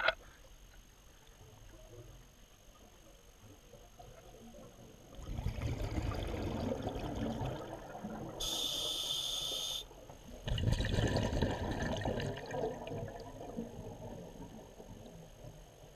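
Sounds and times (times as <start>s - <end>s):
exhaled bubbles rushing underwater: 4.4s - 8.5s, 9.9s - 15.8s
regulator inhalation hiss: 8.4s - 9.9s.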